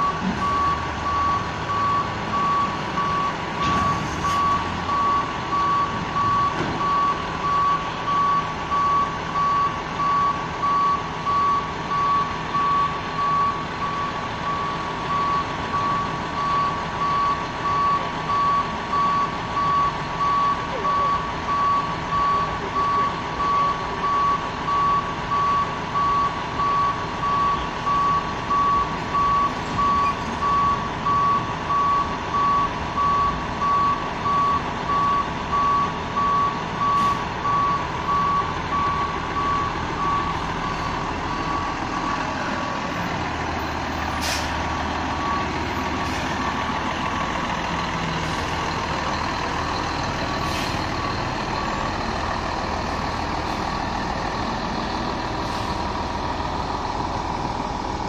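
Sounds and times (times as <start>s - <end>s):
truck engine running: 0.0s - 58.0s
truck reversing alarm beeping: 0.0s - 58.0s
air brake hiss: 44.1s - 44.6s, 50.4s - 50.8s, 55.4s - 55.8s.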